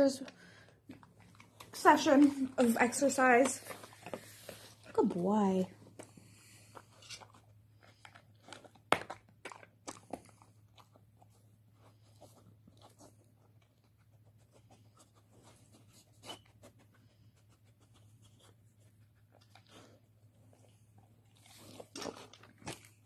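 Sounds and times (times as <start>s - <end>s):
dog crunching biscuits: 0.3s - 5.0s, 5.9s - 14.2s, 19.0s - 23.0s.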